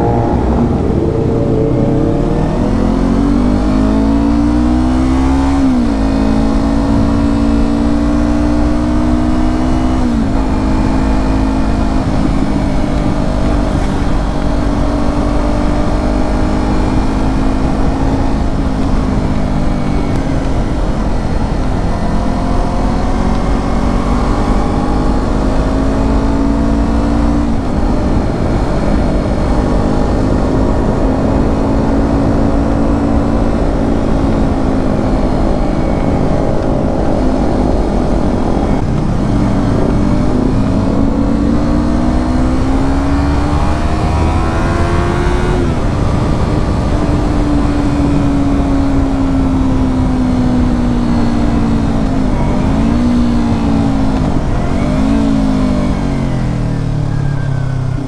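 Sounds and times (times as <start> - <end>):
motorcycle engine accelerating: 0.0 - 58.0.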